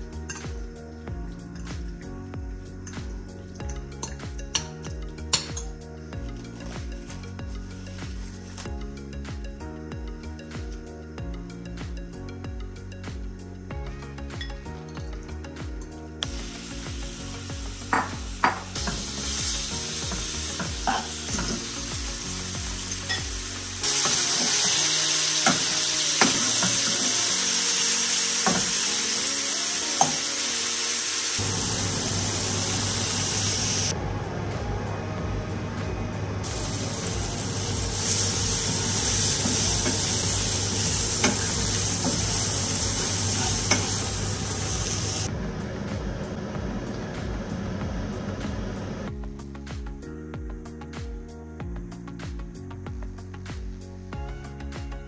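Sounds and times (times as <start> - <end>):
chicken sizzling in oil: 16.2 - 34.0, 36.4 - 45.3.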